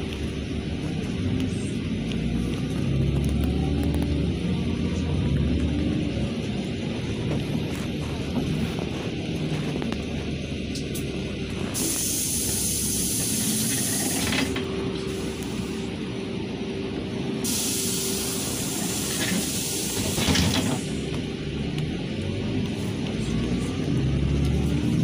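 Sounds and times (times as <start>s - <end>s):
bus engine and road noise: 0.0s - 25.0s
air hiss: 11.8s - 15.4s, 17.4s - 21.0s.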